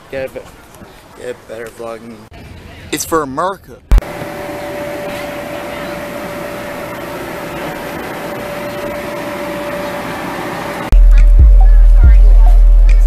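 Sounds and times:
blower fan whirring: 3.9s - 13.0s
loud music with bass beat: 10.9s - 13.0s.

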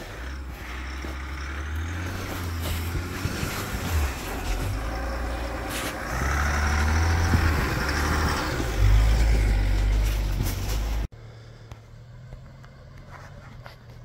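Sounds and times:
pickup truck engine under load: 0.0s - 11.1s
tyres crunching through snow: 0.0s - 11.1s.

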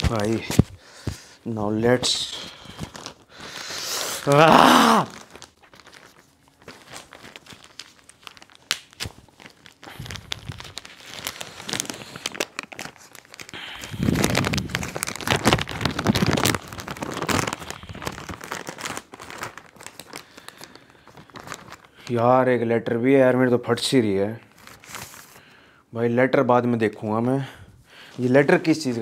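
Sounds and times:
package packaging tearing: 2.0s - 22.1s, 24.4s - 25.4s.

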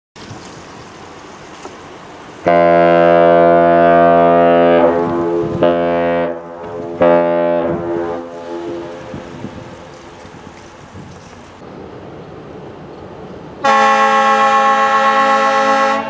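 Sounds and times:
wind hiss: 0.2s - 2.5s, 7.6s - 13.7s
ship horn blasts: 2.4s - 9.9s, 13.6s - 16.0s.

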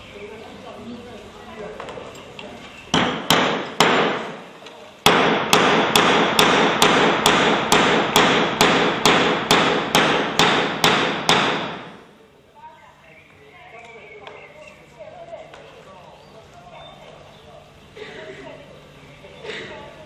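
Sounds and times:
hammer blows ringing: 2.9s - 4.4s, 5.1s - 12.0s.

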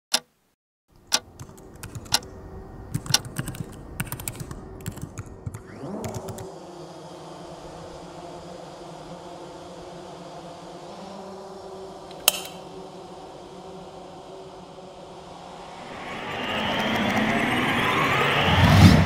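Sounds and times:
laptop keyboard clicks: 1.0s - 2.3s, 2.9s - 6.5s
low hum: 1.0s - 19.0s.

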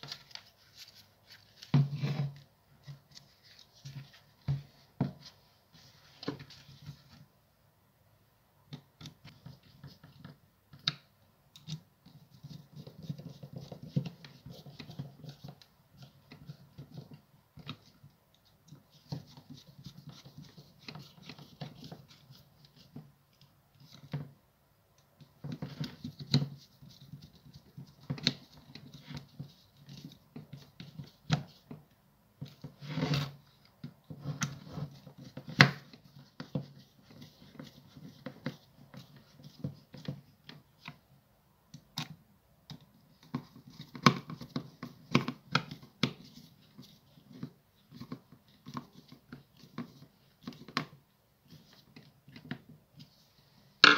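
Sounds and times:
scrape: 0.0s - 7.2s, 32.6s - 33.4s.

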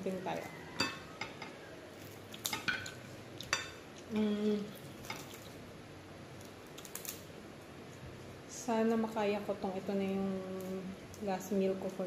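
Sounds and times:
fried pork crackling: 0.0s - 12.0s
person humming: 4.1s - 4.7s.

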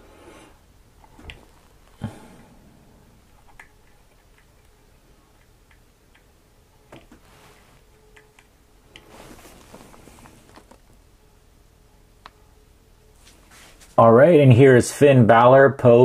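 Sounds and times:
soft short rustles: 7.1s - 7.9s, 9.0s - 11.0s, 13.2s - 14.0s.

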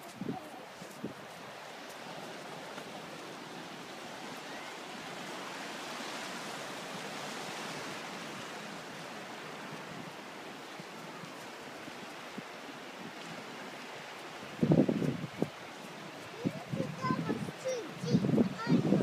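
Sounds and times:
surf washing against rocks: 0.0s - 19.0s.

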